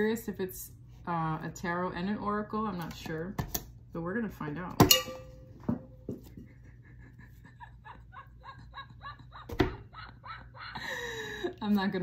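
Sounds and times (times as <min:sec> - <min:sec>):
woman giggling: 0:06.3 - 0:11.7.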